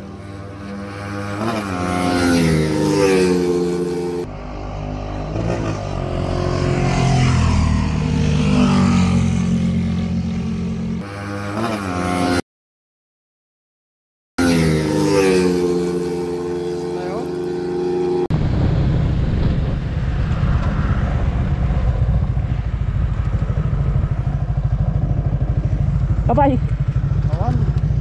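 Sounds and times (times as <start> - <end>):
motorcycles accelerating: 0.0 - 12.4, 14.4 - 18.3, 19.4 - 28.0.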